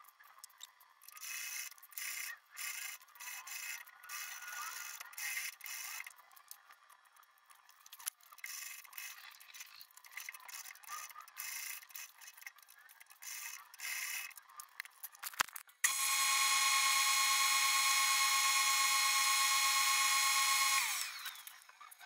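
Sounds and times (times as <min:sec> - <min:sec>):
sewing machine stitching: 0:15.9 - 0:21.7.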